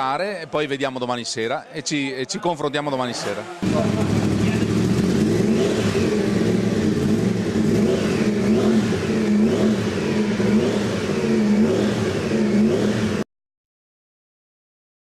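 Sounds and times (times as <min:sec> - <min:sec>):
motorcycle engine revving: 0:03.6 - 0:13.3.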